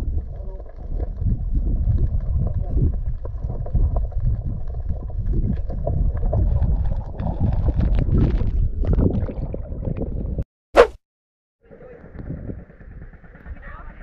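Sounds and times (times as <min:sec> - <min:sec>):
wind rumbling on microphone: 0:00.0 - 0:10.4, 0:11.6 - 0:14.0.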